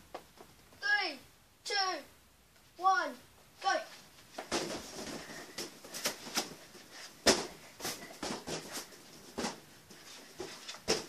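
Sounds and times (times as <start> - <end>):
balloons thumping on floor: 4.4 - 11.0.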